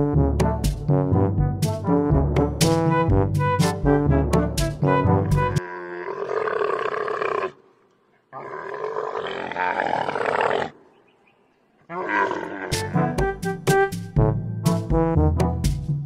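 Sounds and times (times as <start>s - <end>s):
brass music: 0.0s - 5.6s, 12.7s - 16.0s
camel calling: 11.8s - 13.0s.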